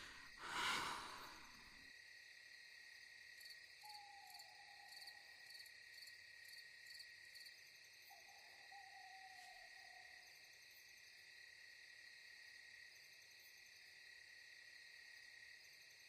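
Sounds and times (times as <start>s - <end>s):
long falling calls: 0.0s - 1.5s
crickets chirping: 0.0s - 16.0s.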